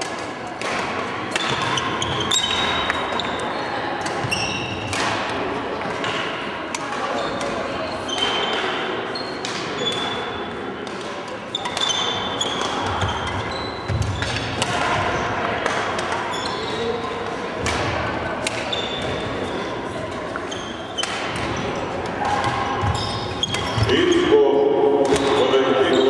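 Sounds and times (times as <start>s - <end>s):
racket striking shuttlecock: 4.0s - 7.6s, 14.0s - 16.2s, 17.6s - 19.2s, 21.0s - 23.8s
shoes squeaking on wooden floor: 4.2s - 4.8s, 20.3s - 21.0s, 22.8s - 24.3s.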